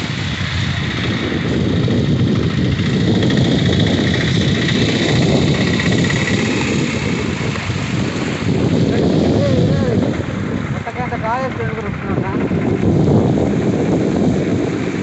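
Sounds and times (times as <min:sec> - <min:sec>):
tyres hissing on wet road: 0:00.0 - 0:11.4
motorcycle engine running: 0:00.0 - 0:15.0
wind on the microphone: 0:00.0 - 0:15.0.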